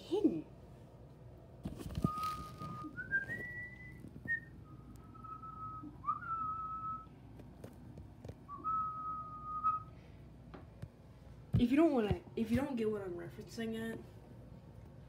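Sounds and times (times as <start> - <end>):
person whistling a tune: 2.0 - 7.1, 8.5 - 9.9.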